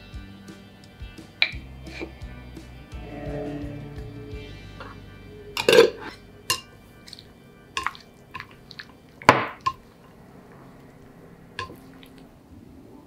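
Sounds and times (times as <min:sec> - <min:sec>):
chopsticks clinking against glass bowl: 0:11.6 - 0:11.9.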